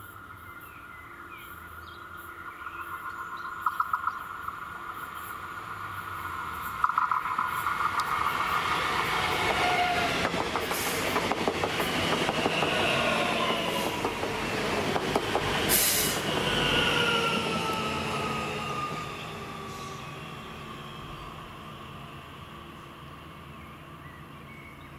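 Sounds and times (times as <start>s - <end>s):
train wheels rumbling on rails: 3.6s - 24.4s
traction motors whining: 6.6s - 22.9s.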